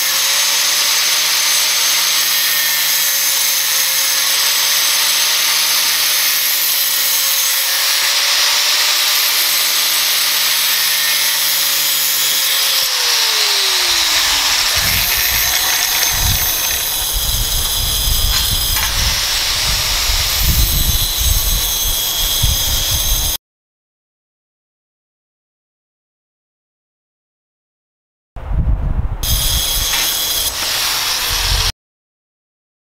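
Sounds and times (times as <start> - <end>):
angle grinder cutting steel: 0.0 - 23.4, 29.2 - 31.7
grinder spinning down: 0.0 - 23.4, 29.2 - 31.7
low rumbling: 13.0 - 21.6.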